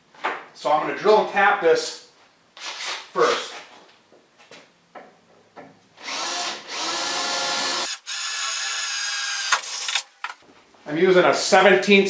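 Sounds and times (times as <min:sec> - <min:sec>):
power drill drilling into metal: 0:06.0 - 0:10.1.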